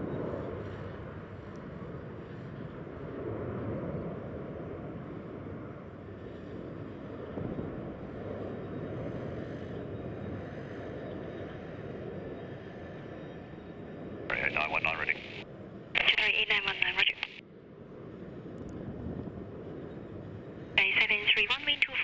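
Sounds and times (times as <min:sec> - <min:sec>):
distant jet engine rumble: 0:00.0 - 0:22.0
faint click: 0:17.2 - 0:17.4.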